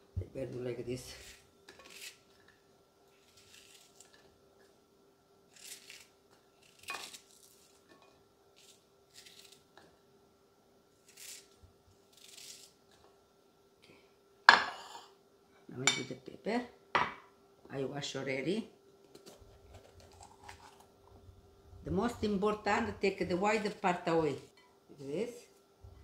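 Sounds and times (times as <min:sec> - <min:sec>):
knife slicing onion: 0:01.1 - 0:02.3, 0:11.0 - 0:12.8.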